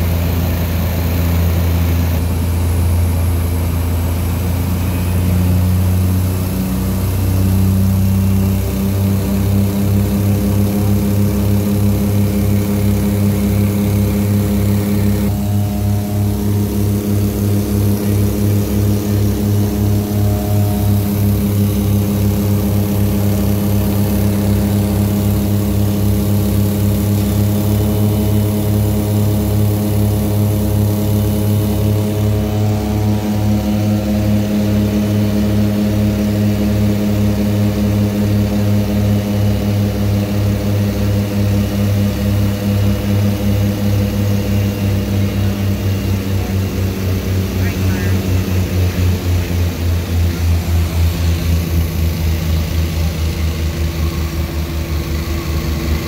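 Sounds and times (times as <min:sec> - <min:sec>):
propeller airplane cabin drone: 0:00.0 - 0:56.0.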